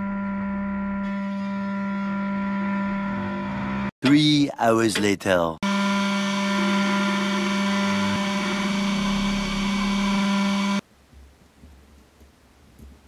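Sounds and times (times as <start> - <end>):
spindle motor high whine: 0.0 - 3.9, 5.6 - 10.8.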